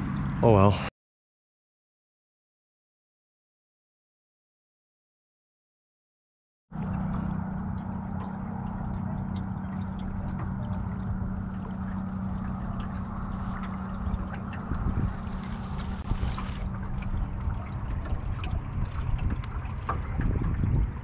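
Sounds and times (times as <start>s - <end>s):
small boat motor humming: 6.7s - 21.0s
water lapping along hull: 6.8s - 21.0s.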